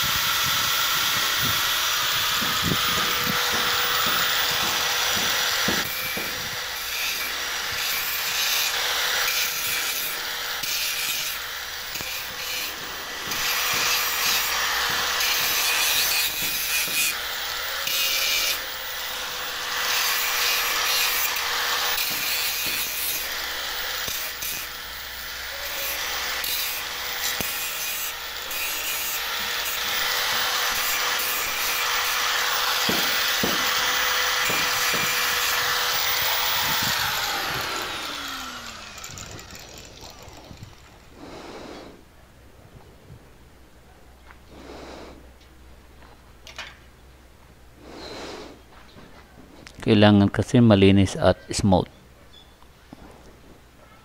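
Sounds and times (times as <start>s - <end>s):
grinder motor winding down: 0.0s - 41.1s
angle grinder grinding steel: 0.0s - 41.9s.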